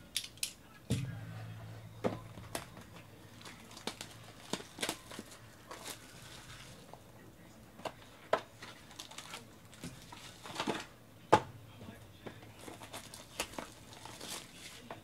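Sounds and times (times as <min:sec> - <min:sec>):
cardboard and plastic handling: 0:02.0 - 0:07.0, 0:07.8 - 0:10.9, 0:12.2 - 0:15.0.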